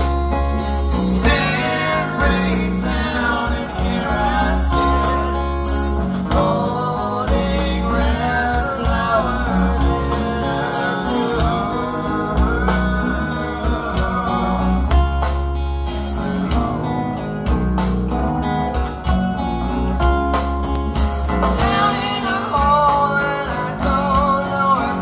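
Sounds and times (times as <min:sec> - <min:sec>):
song with singing and guitar: 0:00.0 - 0:25.0.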